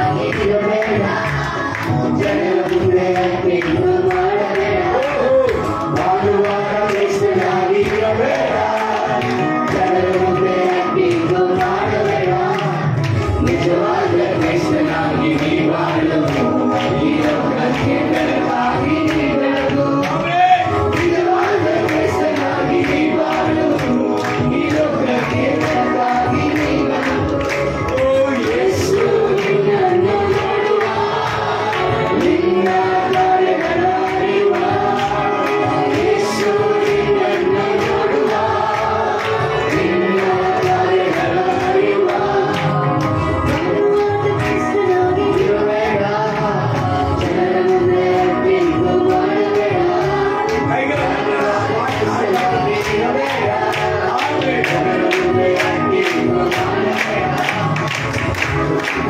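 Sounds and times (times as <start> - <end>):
man singing through microphone: 0.0 - 58.1
voices singing along: 0.0 - 59.0.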